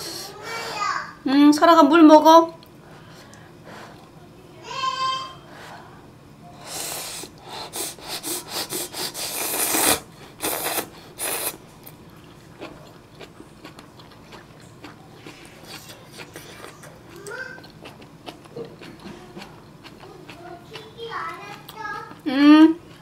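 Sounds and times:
person slurping noodles: 6.6s - 11.6s
quiet chewing: 9.0s - 23.0s.

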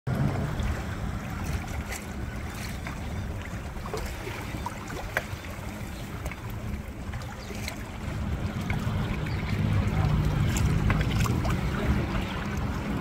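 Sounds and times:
splashes: 0.1s - 13.0s
water lapping against hull: 0.1s - 13.0s
wind buffeting microphone: 0.1s - 13.0s.

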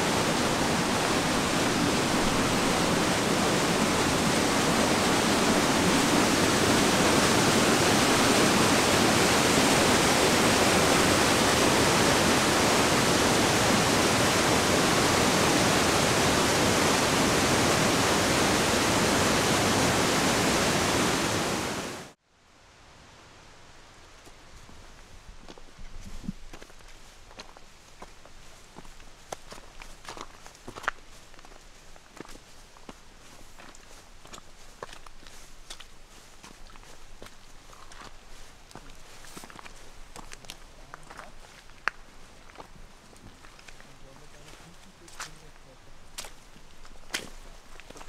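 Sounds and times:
stream rushing over rocks: 0.0s - 22.2s.

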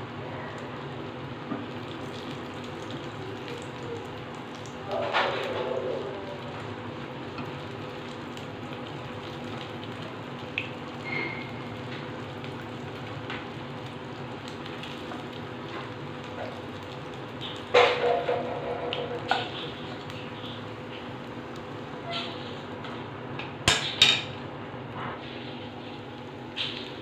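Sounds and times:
potatoes sizzling in hot oil: 6.3s - 24.4s.

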